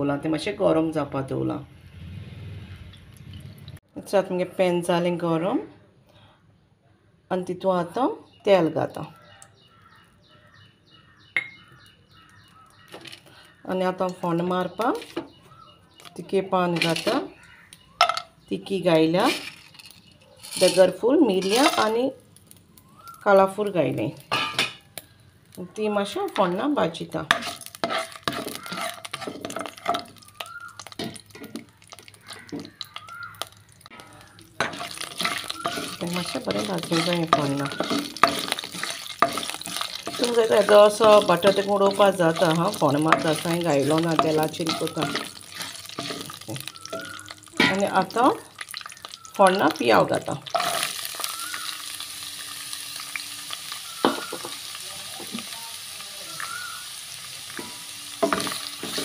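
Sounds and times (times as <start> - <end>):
spices crackling in hot oil: 11.3 - 59.0
spatula stirring in a pan: 27.2 - 59.0.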